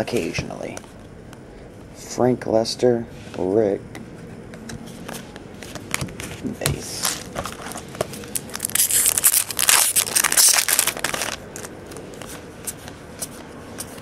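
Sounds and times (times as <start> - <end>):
cards rustling and clicking: 4.6 - 14.0
wrapper tearing with crinkle: 7.0 - 11.7.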